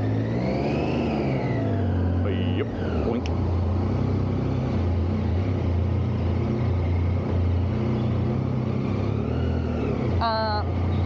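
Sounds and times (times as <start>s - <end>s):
motorcycle engine running at low revs: 0.0s - 11.0s.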